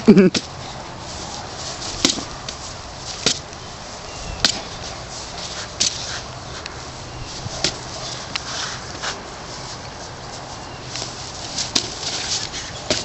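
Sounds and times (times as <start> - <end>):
prop weapons whacking costumes: 1.8 - 3.5, 4.4 - 4.8, 11.0 - 13.0.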